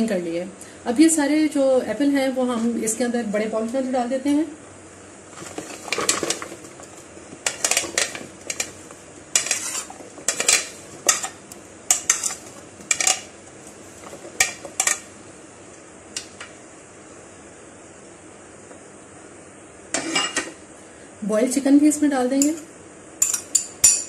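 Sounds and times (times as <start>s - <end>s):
food scraped off ceramic plate: 9.3s - 11.3s.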